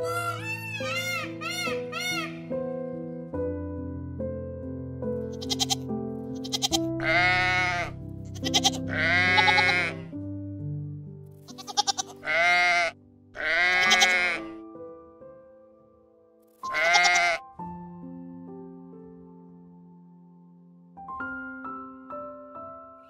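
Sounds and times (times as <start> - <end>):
background music: 0.0 - 23.0
goats bleating: 5.4 - 5.8, 6.4 - 10.0, 11.5 - 14.5, 16.7 - 17.4.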